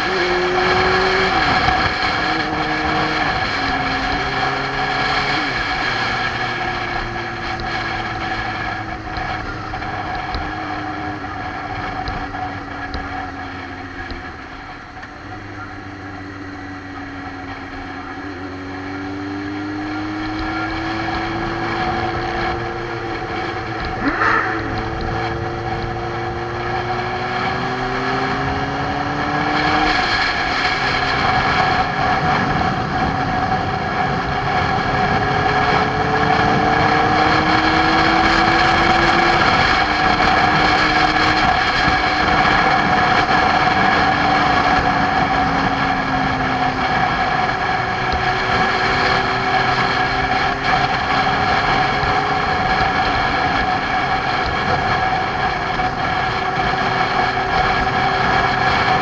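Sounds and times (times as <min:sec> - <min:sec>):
motorcycle engine running: 0:00.0 - 0:59.0
wind and road noise: 0:00.0 - 0:59.0
brief sharp noise: 0:24.0 - 0:24.8.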